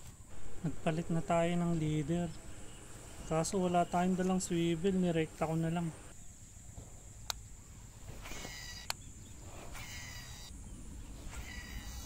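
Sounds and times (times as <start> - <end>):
high insect drone: 5.6 - 12.0
sharp clicks: 7.2 - 7.4.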